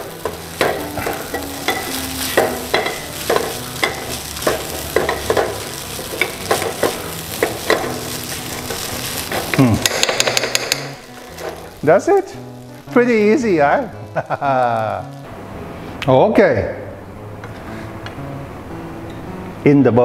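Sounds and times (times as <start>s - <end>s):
spatula scraping frying pan: 0.0s - 11.8s
rice sizzling in pan: 0.0s - 15.3s.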